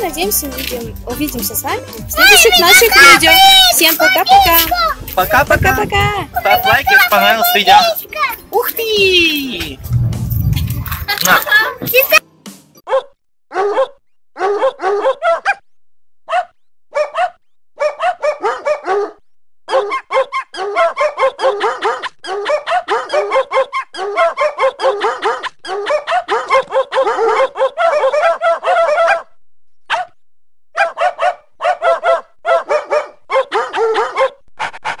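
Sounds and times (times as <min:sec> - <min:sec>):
high-pitched animal yaps: 0:12.9 - 0:15.6, 0:16.3 - 0:30.1, 0:30.8 - 0:34.4.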